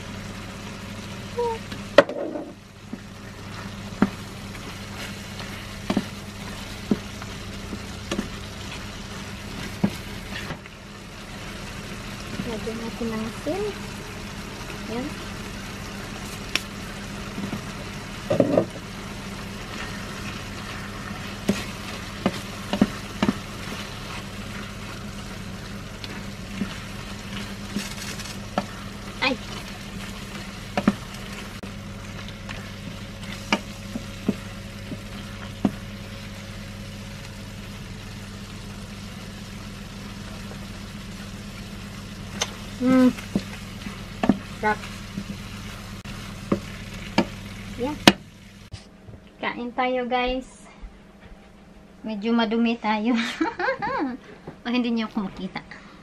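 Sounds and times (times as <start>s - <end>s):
food sizzling in a frying pan: 0.0s - 48.7s
low steady hum: 0.0s - 56.0s.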